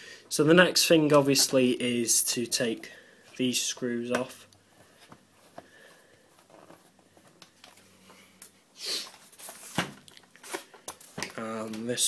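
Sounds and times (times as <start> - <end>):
short hissy breath: 8.1 - 9.2.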